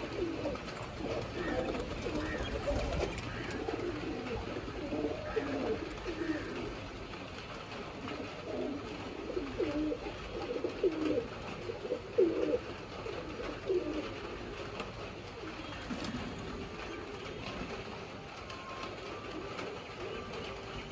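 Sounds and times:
pigeon cooing: 0.0s - 6.8s, 8.1s - 14.6s.

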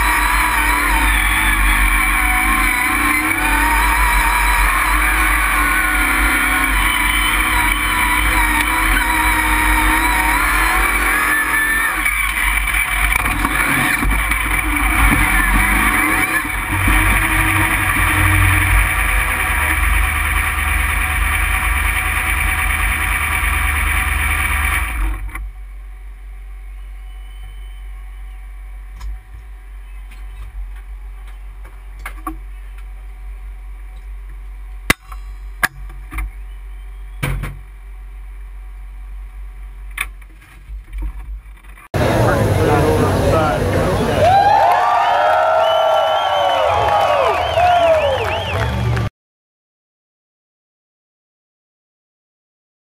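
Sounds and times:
truck engine revving: 0.0s - 25.4s, 42.0s - 49.1s.

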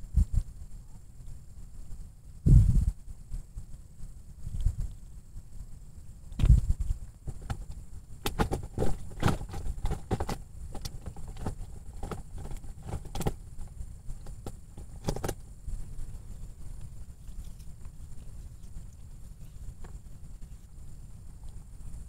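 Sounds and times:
low wind rumble on microphone: 0.0s - 22.0s
hands handling clicks and rustles: 6.3s - 20.8s.

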